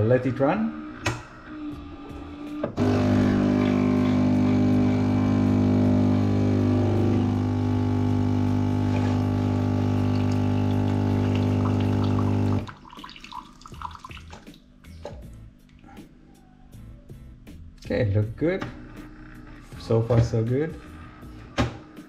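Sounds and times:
espresso machine pump buzzing: 2.7s - 12.7s.

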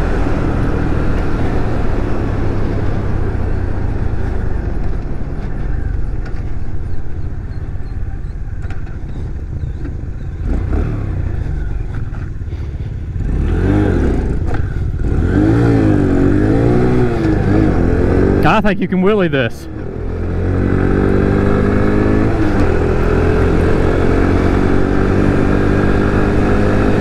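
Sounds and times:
motorcycle engine running: 0.0s - 18.6s.

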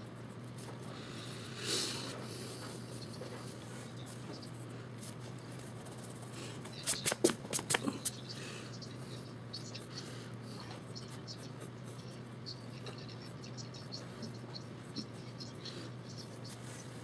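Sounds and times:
low steady hum: 0.0s - 17.0s
eraser rubbing on paper: 5.0s - 8.2s.

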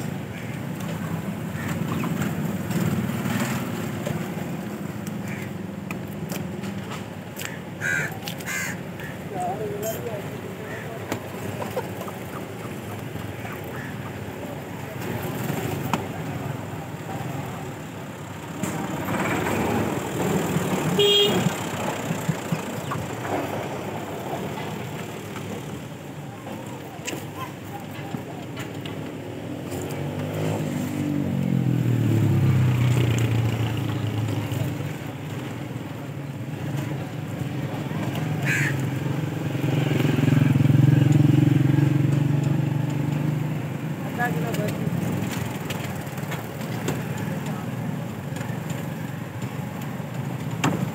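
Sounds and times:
street traffic: 0.0s - 50.9s
passing vehicle engine hum: 9.1s - 26.8s, 29.3s - 50.9s
vehicle horn toot: 20.9s - 21.6s.

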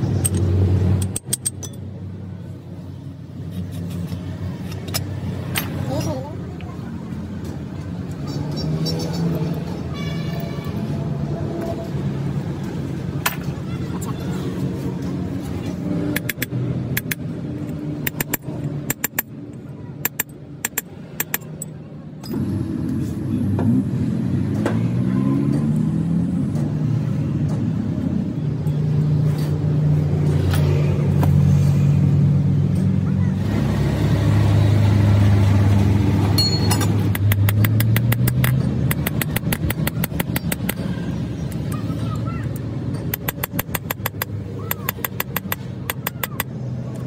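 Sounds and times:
sharp metal taps: 0.2s - 1.9s, 16.1s - 17.3s, 18.0s - 19.4s, 20.0s - 22.4s, 36.4s - 40.9s, 41.5s - 46.6s.

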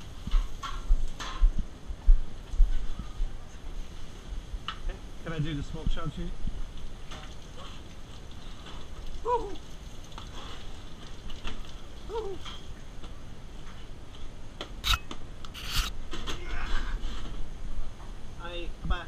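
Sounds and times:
kitchen background noise: 0.0s - 1.5s.

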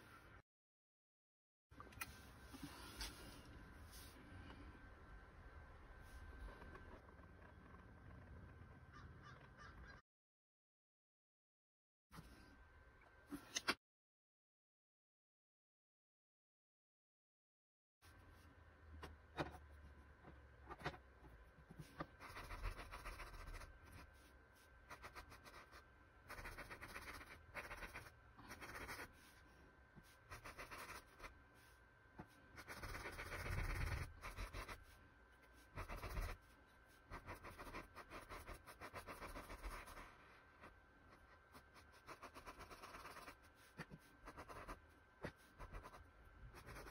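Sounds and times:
paintbrush scratching on canvas: 35.6s - 40.1s.

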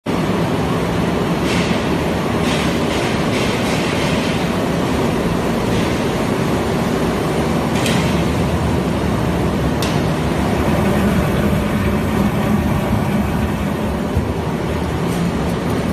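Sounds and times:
loud mechanical din: 10.2s - 15.1s.

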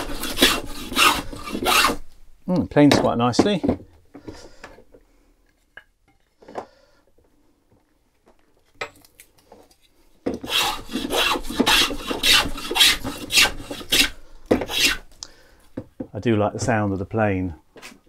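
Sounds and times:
hand plane shaving wood: 0.0s - 2.0s, 10.4s - 15.1s.

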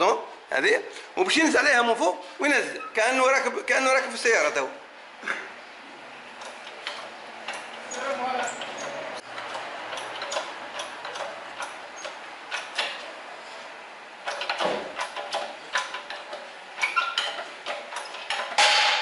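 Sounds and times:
hydraulic press metallic clicks: 6.4s - 13.1s, 14.2s - 19.0s
loud metallic knock: 18.5s - 19.0s.

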